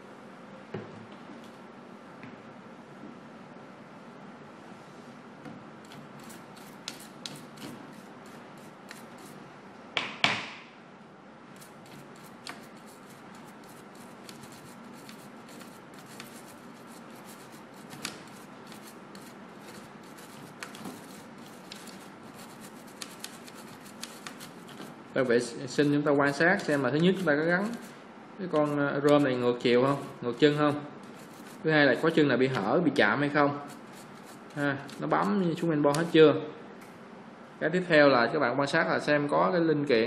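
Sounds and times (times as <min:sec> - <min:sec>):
toothbrush scrubbing circuit board: 0:05.9 - 0:09.4, 0:11.6 - 0:25.0, 0:31.1 - 0:31.6, 0:33.7 - 0:35.4.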